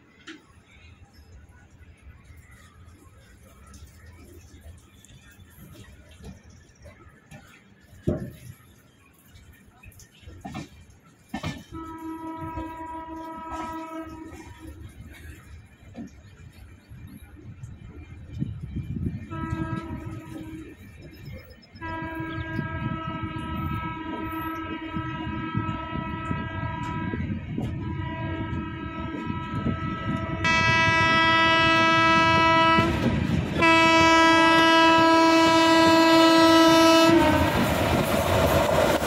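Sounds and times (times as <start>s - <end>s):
train rushing on rails: 0.0s - 39.0s
train horn: 11.5s - 15.4s, 19.2s - 20.9s, 21.8s - 38.1s.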